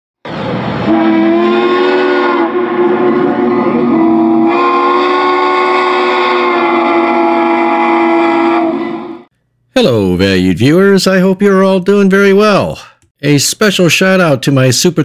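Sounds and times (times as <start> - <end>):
steam locomotive whistle: 0.6 - 9.3.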